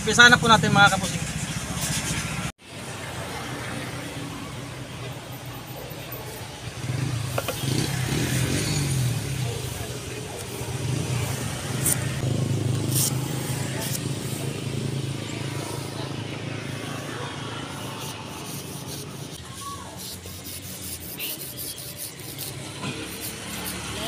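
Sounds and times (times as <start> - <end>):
vehicle engine running: 6.4 - 19.4
blade scraping and cutting rubber: 7.2 - 14.5, 17.7 - 24.0.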